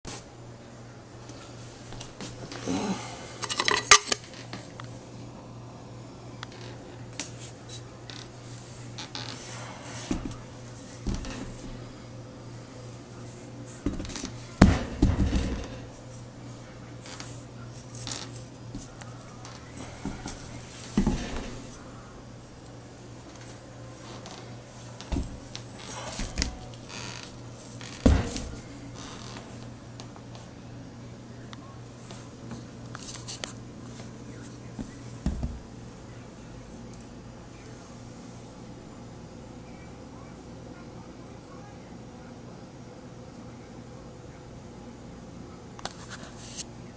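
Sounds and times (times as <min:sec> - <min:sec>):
steady low hum: 0:00.1 - 0:46.9
metal part scraping and rustling: 0:03.4 - 0:04.3.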